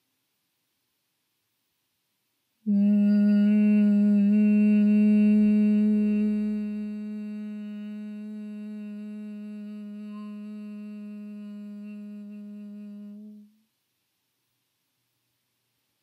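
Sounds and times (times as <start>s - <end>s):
woman humming a low note: 2.7s - 13.6s.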